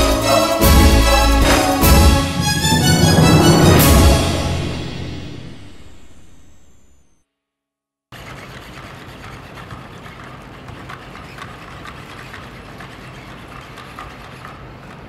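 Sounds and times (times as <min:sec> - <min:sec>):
music track: 0:00.0 - 0:06.9.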